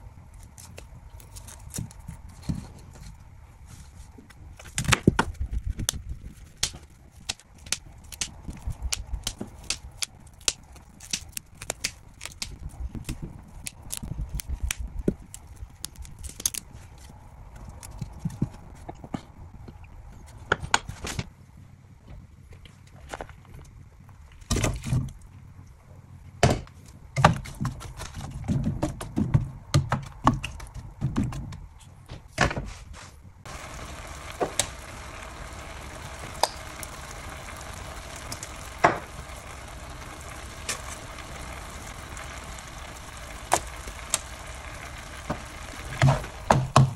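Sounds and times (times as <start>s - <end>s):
sizzling in a frying pan: 33.5s - 46.9s.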